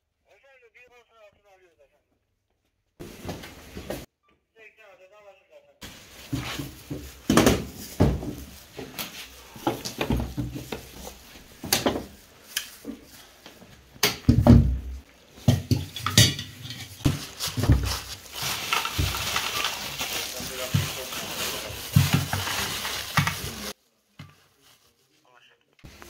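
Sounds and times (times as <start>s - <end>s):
metal objects clunking on hard floor: 14.0s - 18.0s.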